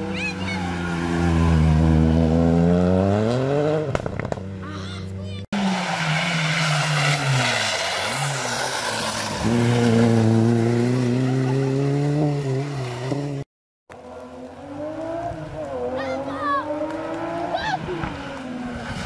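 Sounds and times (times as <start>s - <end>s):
rally car engine accelerating: 5.6s - 13.4s, 14.0s - 19.0s.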